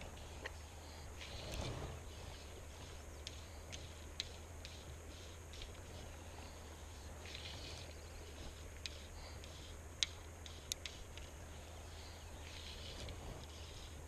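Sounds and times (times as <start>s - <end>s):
small sharp clicks: 8.8s - 11.4s.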